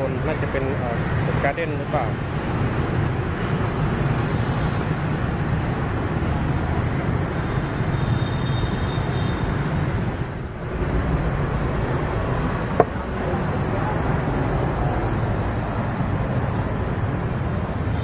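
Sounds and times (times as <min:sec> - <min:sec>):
street traffic hum: 0:00.0 - 0:18.0.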